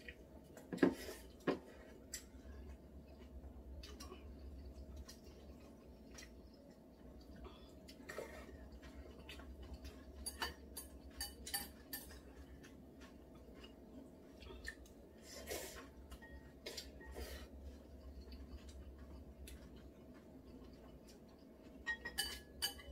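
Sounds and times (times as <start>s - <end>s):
steady low hum: 0.0s - 22.9s
chopsticks clinking on bowls: 9.2s - 13.7s, 21.7s - 22.9s.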